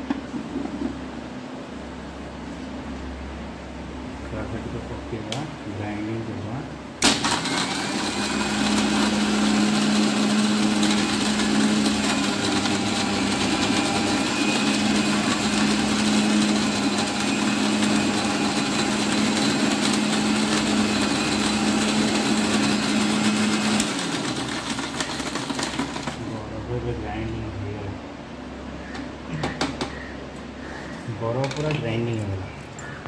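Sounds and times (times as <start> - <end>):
mixer grinder crushing ice: 7.0 - 26.3.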